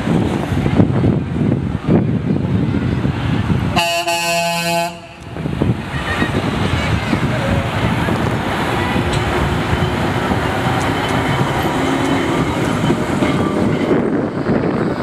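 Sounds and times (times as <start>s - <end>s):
modern tram sweeping past: 0.0s - 15.0s
tram rumbling past: 0.0s - 15.0s
wheels clicking over rails: 5.2s - 15.0s.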